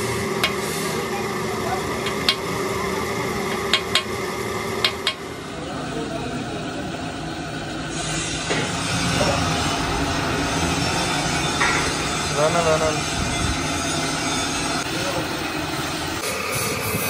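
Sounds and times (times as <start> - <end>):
workshop background noise: 0.0 - 17.0
hammer striking metal: 3.5 - 4.1, 4.8 - 5.2, 11.2 - 12.8.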